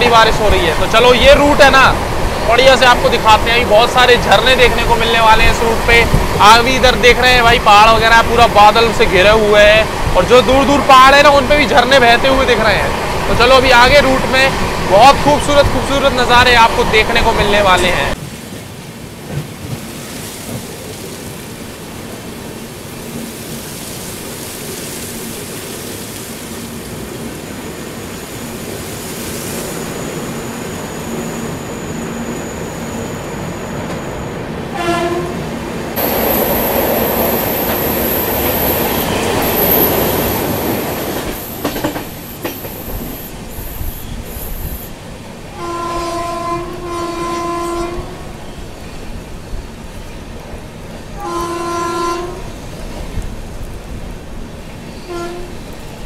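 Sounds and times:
train rumble inside coach: 0.0 - 56.0
train horn: 34.7 - 35.5, 45.5 - 48.4, 51.2 - 52.5, 55.0 - 55.6.

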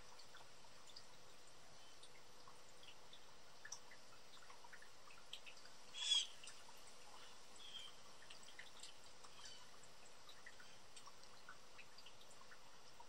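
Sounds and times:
blue jay harsh call: 6.0 - 6.4
faint ticks and chips: 6.4 - 13.0.

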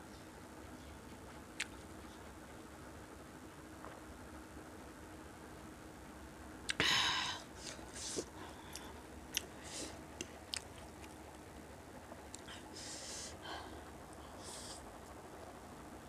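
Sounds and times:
chewing: 10.2 - 11.2.

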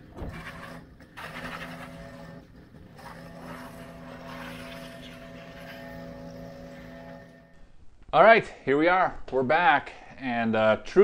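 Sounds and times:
pressure washer engine running: 0.3 - 2.2, 2.9 - 7.4
hissing spray: 3.0 - 5.9.

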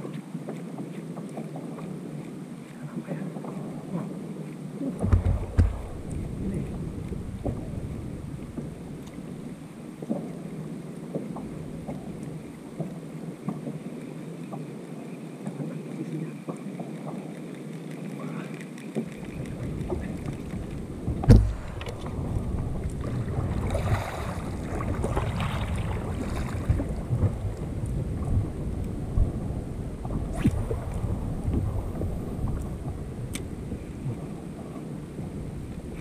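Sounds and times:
paddle splashing in water: 0.0 - 36.0
wind buffeting microphone: 0.8 - 36.0
sharp knock: 21.2 - 21.7.

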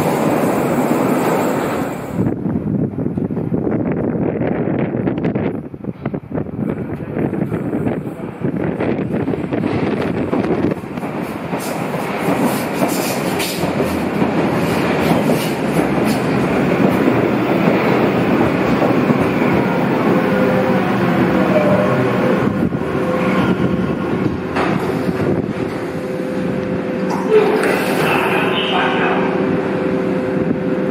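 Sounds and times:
train wheels clattering: 9.7 - 19.6.

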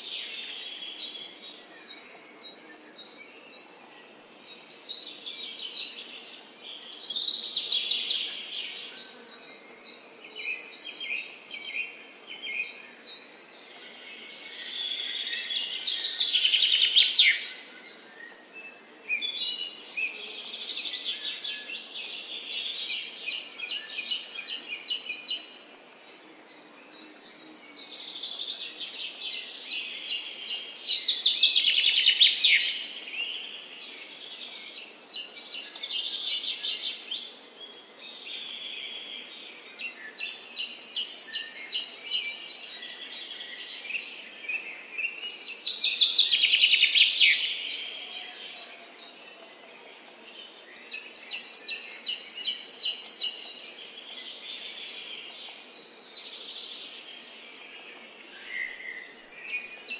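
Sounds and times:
faint steady background hiss: 0.0 - 59.9
songbirds singing and chirping: 0.0 - 59.9.

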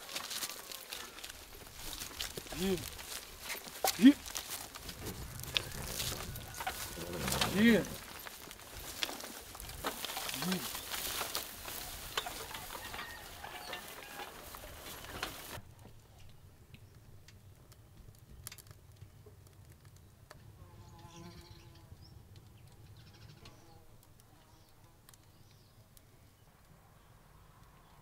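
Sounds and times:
faint farm animal calls: 0.0 - 3.2, 3.8 - 9.3, 10.0 - 15.6, 20.6 - 22.0, 22.8 - 25.0
rustling through long grass: 0.0 - 15.6.

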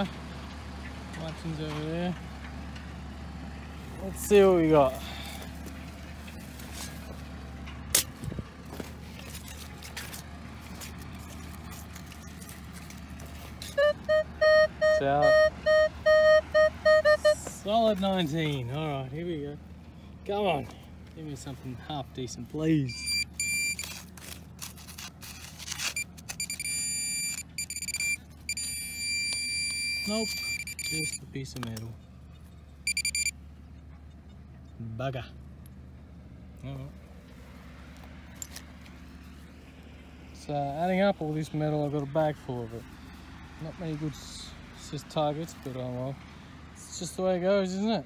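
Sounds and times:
tractor engine hum: 0.0 - 48.0
metal detector beep: 13.7 - 17.5, 22.9 - 24.0, 25.8 - 31.2, 32.8 - 33.4
pinpointer probe high-pitched tone: 13.8 - 17.5, 22.9 - 23.9, 26.0 - 31.2, 32.9 - 33.3.

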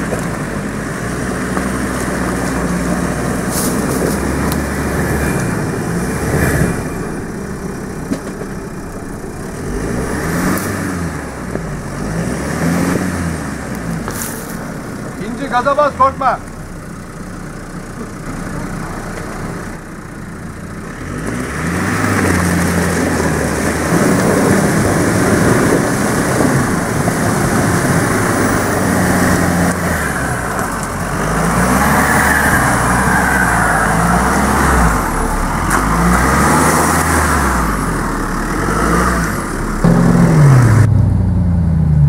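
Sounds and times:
tyres churning mud: 0.0 - 16.4, 21.0 - 40.9
engine revving hard: 1.8 - 8.0, 8.9 - 14.5, 21.0 - 41.1.

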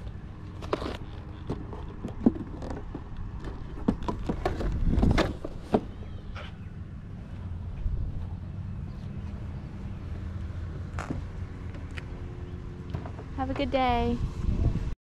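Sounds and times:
microphone rumble: 14.2 - 15.0.

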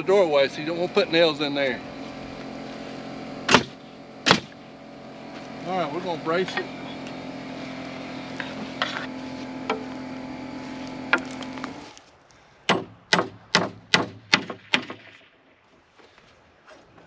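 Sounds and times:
steady motor hum: 0.0 - 12.0
hammer striking nail into wood: 3.5 - 4.6, 12.7 - 15.1.

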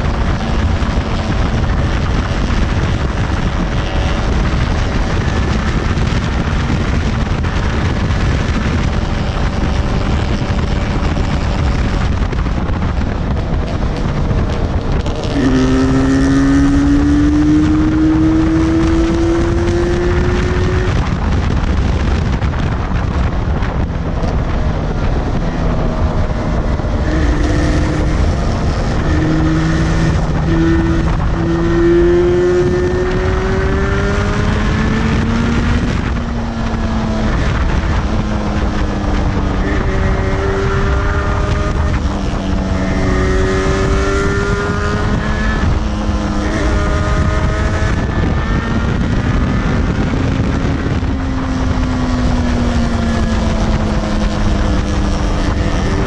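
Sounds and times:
motorcycle engine accelerating: 0.0 - 56.0
wind buffeting on microphone: 0.0 - 56.0.

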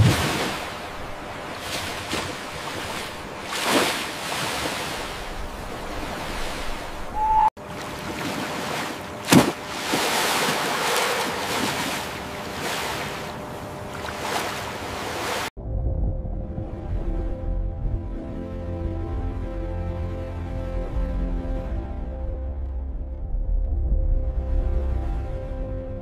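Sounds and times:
ocean waves rushing: 0.0 - 15.5.

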